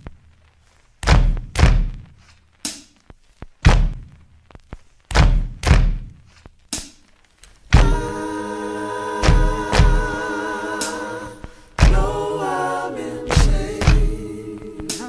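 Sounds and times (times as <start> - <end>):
deep heavy thumps with echo: 7.8 - 8.1, 9.2 - 10.1, 11.8 - 12.2, 13.3 - 14.2.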